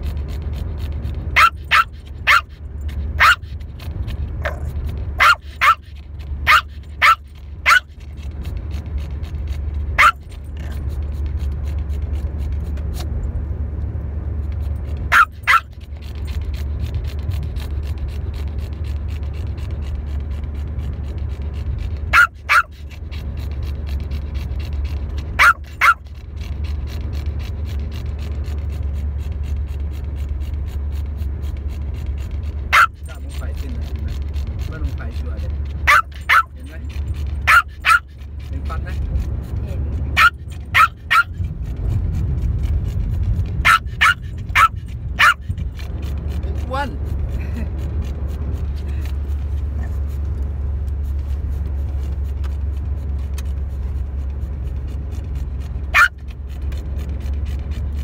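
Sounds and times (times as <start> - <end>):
steady low hum: 0.0 - 58.0
dog barking: 1.4 - 2.6, 3.2 - 3.5, 4.4 - 7.9, 10.0 - 10.2, 15.1 - 15.7, 22.1 - 22.8, 25.4 - 26.0, 32.7 - 33.0, 35.8 - 36.6, 37.4 - 38.1, 40.2 - 41.4, 43.6 - 45.5, 55.9 - 56.2.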